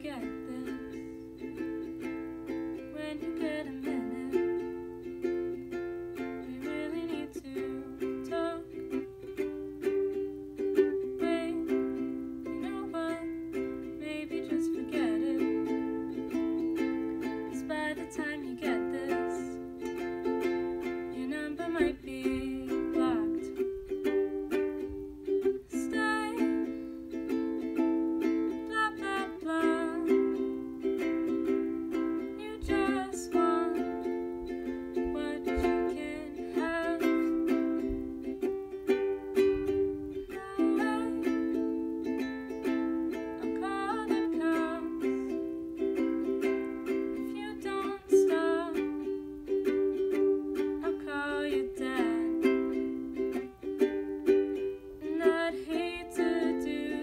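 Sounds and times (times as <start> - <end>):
ukulele strumming: 0.0 - 57.0
young woman singing: 0.0 - 57.0.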